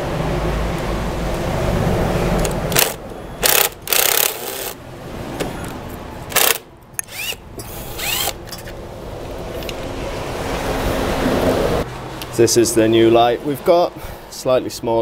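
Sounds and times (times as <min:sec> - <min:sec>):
impact driver bursts: 0:02.7 - 0:04.8, 0:06.3 - 0:08.4.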